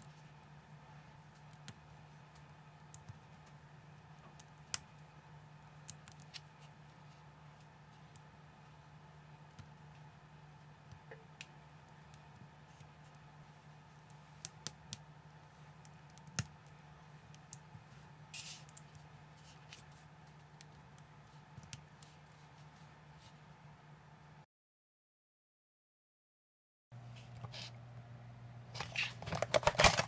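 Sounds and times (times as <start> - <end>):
scratchy plastic rustle: 28.7 - 30.0.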